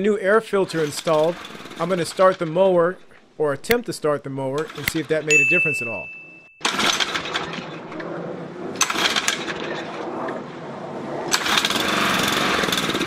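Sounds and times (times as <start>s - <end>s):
lawn mower engine running unevenly: 0.6s - 2.4s, 8.8s - 9.6s, 11.3s - 13.0s.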